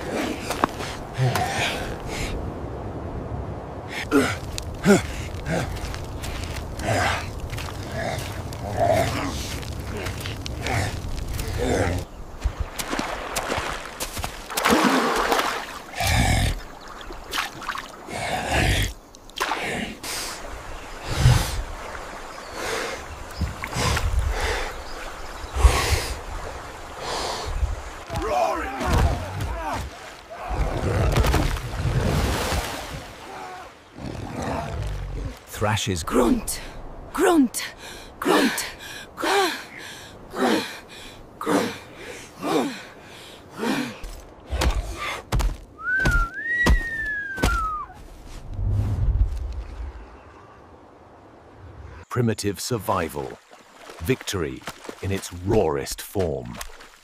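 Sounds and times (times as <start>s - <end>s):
water sloshing: 12.3s - 18.1s, 20.4s - 35.5s, 53.3s - 55.3s.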